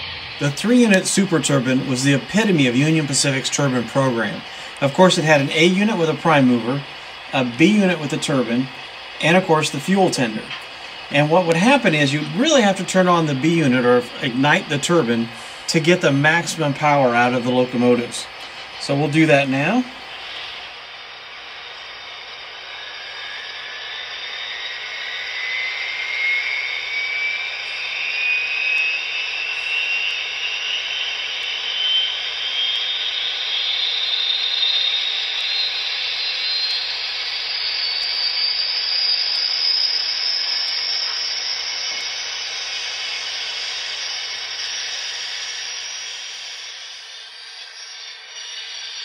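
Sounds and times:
gas turbine whine spooling up: 0.0s - 49.0s.

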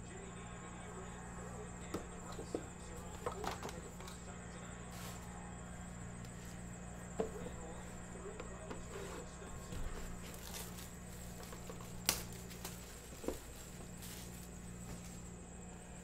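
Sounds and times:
low electrical hum: 0.0s - 16.0s.

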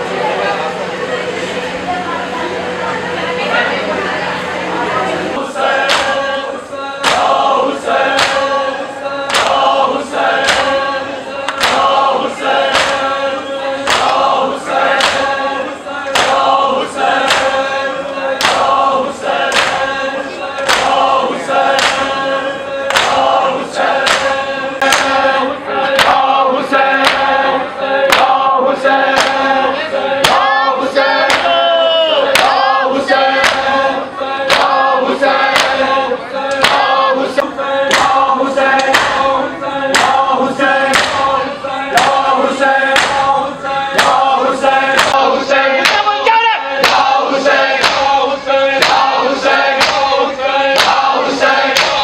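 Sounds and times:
crowd of men chanting: 2.7s - 52.0s
hands slapping bare chests: 7.0s - 7.3s, 8.1s - 8.5s, 10.4s - 10.8s, 11.5s - 11.9s, 12.7s - 13.1s, 13.9s - 14.2s, 16.2s - 16.5s, 18.4s - 18.7s, 19.5s - 19.8s, 20.6s - 21.0s, 21.7s - 22.1s, 22.9s - 23.3s, 35.5s - 35.8s, 39.9s - 40.2s, 40.9s - 41.2s, 42.9s - 43.3s, 46.8s - 47.2s, 48.8s - 49.1s, 50.7s - 51.1s, 51.7s - 52.0s.

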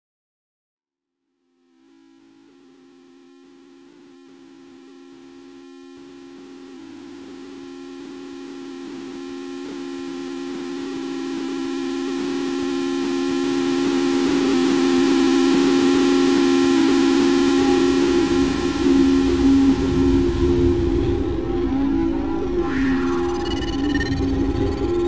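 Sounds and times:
two-note drone: 1.7s - 25.0s
low notes: 16.4s - 25.0s.

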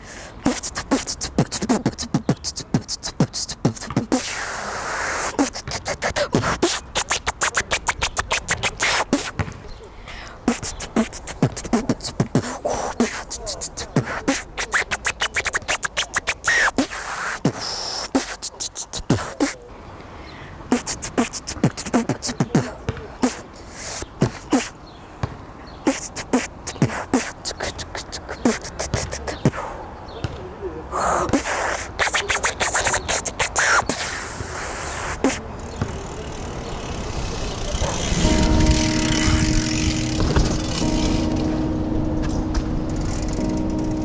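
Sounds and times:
beatbox vocal percussion: 0.0s - 9.5s, 10.1s - 19.7s, 20.7s - 24.8s, 25.8s - 29.8s, 30.9s - 35.8s.

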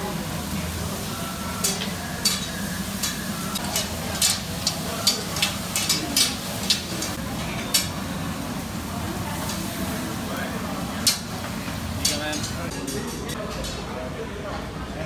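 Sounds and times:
food sizzling on griddle: 0.0s - 12.7s
metal sticks clacking and scraping: 1.6s - 7.9s, 12.0s - 13.8s.

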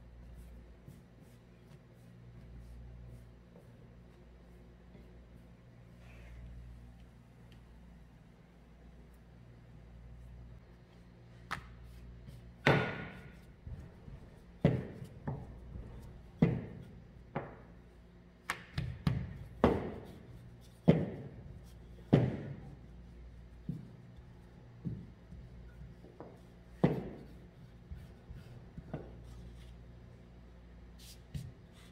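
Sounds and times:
rolling pin knocking on countertop: 18.7s - 20.1s, 20.8s - 21.4s, 22.1s - 22.6s, 24.8s - 28.1s.

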